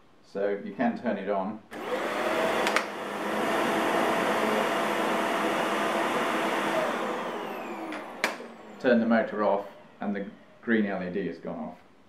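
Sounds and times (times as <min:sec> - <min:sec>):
vacuum cleaner running: 0:01.7 - 0:10.8
vacuum cleaner switch click: 0:01.8 - 0:03.1, 0:06.6 - 0:08.8.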